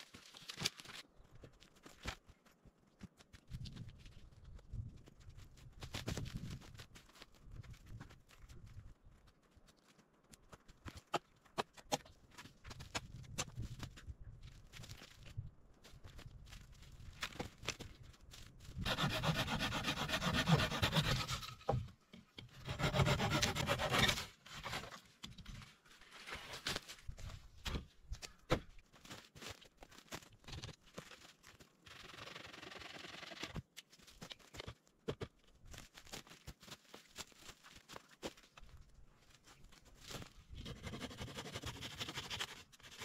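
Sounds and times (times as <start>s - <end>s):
hand tool rasping on wood: 18.8s - 21.4s, 22.6s - 24.2s.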